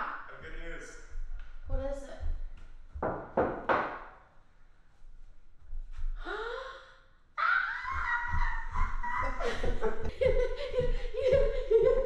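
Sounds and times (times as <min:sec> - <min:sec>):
high-pitched excited cry: 0:07.4 - 0:09.4
excited voices: 0:07.4 - 0:10.1
people gasping: 0:08.0 - 0:12.0.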